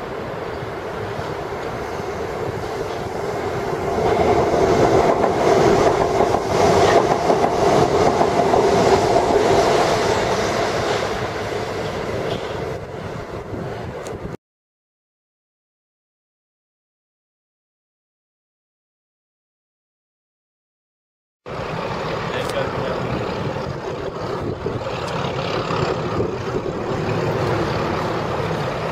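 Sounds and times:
diesel locomotive engine under load: 0.0s - 14.4s, 21.5s - 28.9s.

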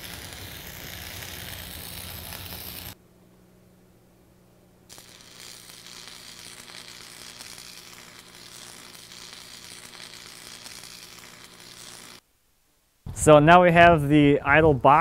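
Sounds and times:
welder humming: 0.0s - 3.0s, 4.9s - 12.2s
welding arc crackling: 0.0s - 3.0s, 4.9s - 12.2s.

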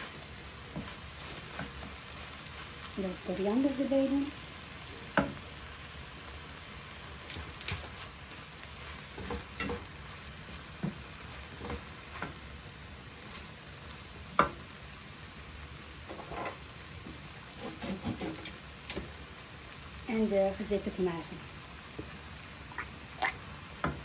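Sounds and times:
spatula scraping and knocking pan: 0.0s - 2.0s, 8.9s - 10.0s, 10.7s - 12.4s, 16.0s - 19.2s
food sizzling in a frying pan: 0.0s - 24.0s.

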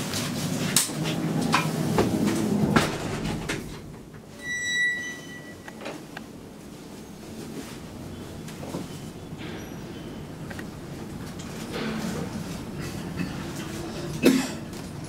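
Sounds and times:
elevator doors sliding shut: 0.0s - 15.0s
electronic chime tone: 4.4s - 5.7s.

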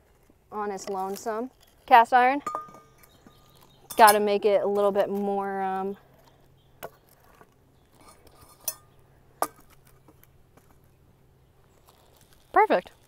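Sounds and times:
skillet clinking on bricks: 2.4s - 5.2s, 8.0s - 10.2s.

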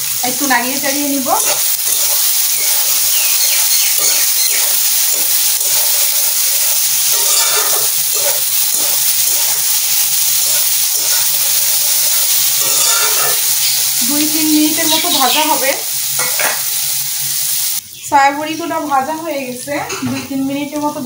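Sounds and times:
food sizzling in hot oil: 0.0s - 21.0s
spoon stirring: 0.8s - 15.4s, 16.2s - 16.8s.

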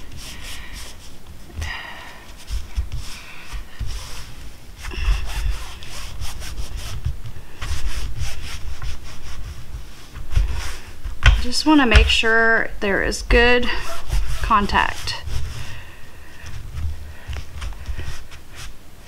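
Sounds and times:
hands rubbing fabric patch: 0.0s - 12.4s, 13.3s - 19.0s.

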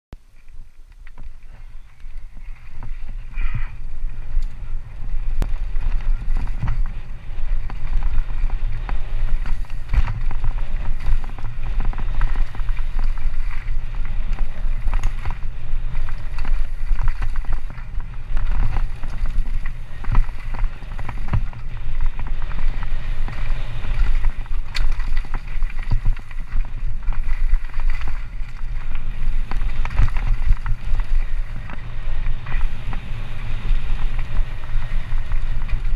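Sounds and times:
tyres rolling on gravel: 0.2s - 35.9s
bike knocks and rattles: 1.0s - 35.9s
wind buffeting microphone: 1.2s - 35.9s.

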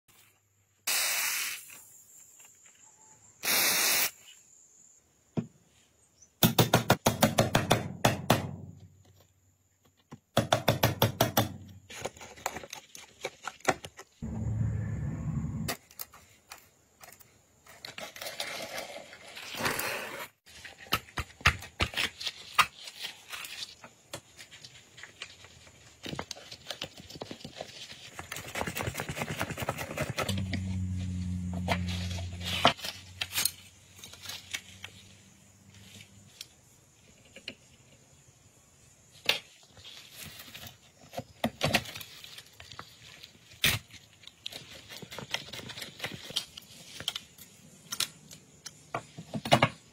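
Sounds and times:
steady low hum: 14.2s - 15.8s, 30.3s - 33.4s.

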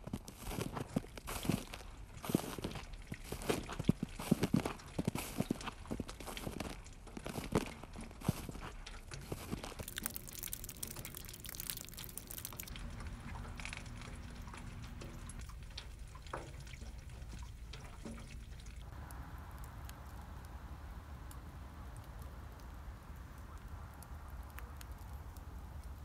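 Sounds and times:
meltwater dripping and trickling: 0.0s - 26.0s
steady low hum: 9.8s - 26.0s.

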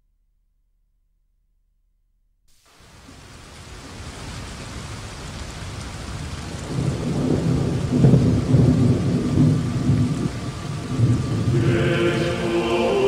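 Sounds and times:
rain-like hiss: 2.5s - 13.0s
low thunder-like rumble: 6.4s - 13.0s.

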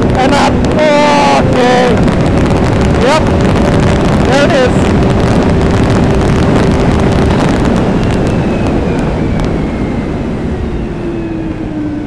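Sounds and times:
faint falling whine: 0.0s - 12.0s
snowmobile engine running hard: 0.0s - 12.0s
wind rushing over microphone: 0.0s - 12.0s.

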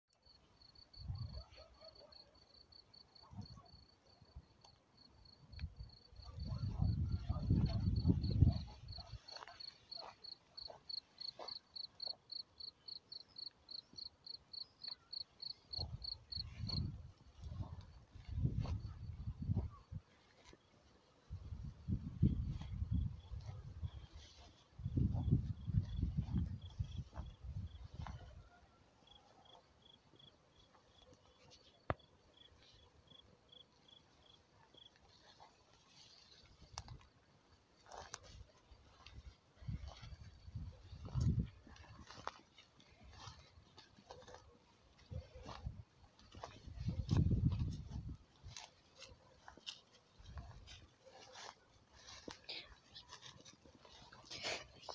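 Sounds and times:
cricket chirping: 0.2s - 19.9s, 22.2s - 35.4s
grass rustling: 6.6s - 12.4s, 14.4s - 28.4s, 30.7s - 54.9s
insect chirping: 7.9s - 16.9s.

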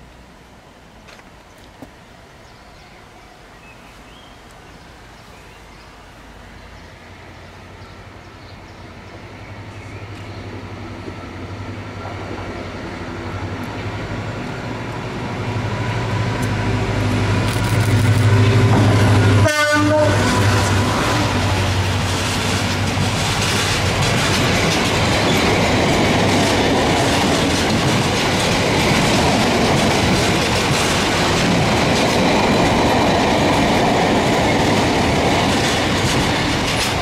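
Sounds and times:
diesel locomotive engine hum: 0.0s - 37.0s
locomotive horn tone: 18.1s - 21.9s.

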